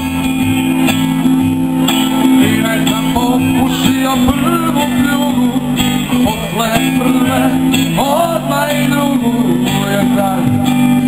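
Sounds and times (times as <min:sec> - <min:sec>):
bass guitar: 0:00.0 - 0:11.0
guitars: 0:00.0 - 0:11.0
person singing: 0:02.2 - 0:11.0.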